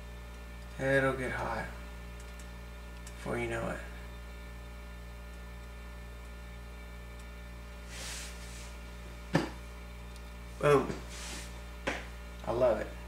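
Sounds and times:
electrical mains hum: 0.0s - 13.0s
soft hiss: 7.7s - 8.9s, 10.5s - 11.8s
sharp tap: 11.8s - 12.1s.

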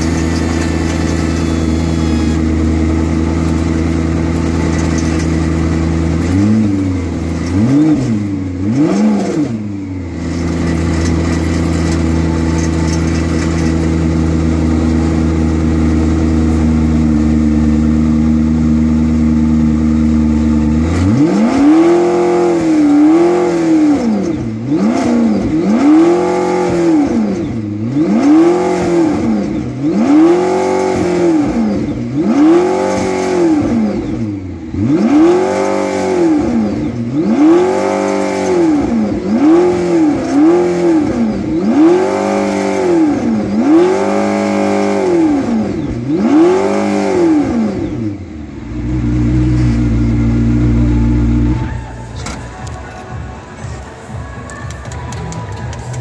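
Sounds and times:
engine revving sharply: 0.0s - 17.0s, 20.4s - 48.2s
car engine idling: 0.0s - 56.0s.

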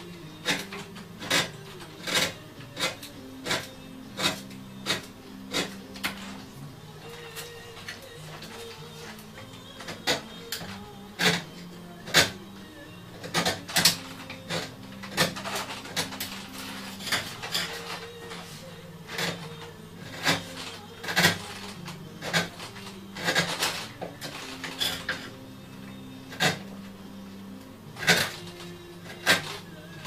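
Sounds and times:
hand tool scraping wood: 0.4s - 6.5s, 13.2s - 25.3s.

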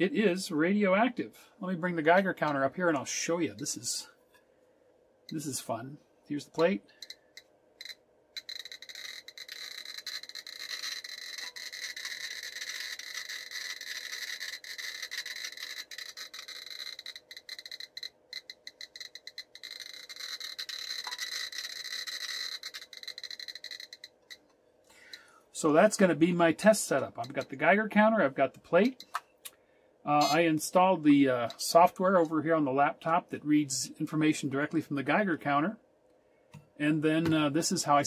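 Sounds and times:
geiger counter clicking: 6.6s - 25.2s, 28.9s - 29.2s.

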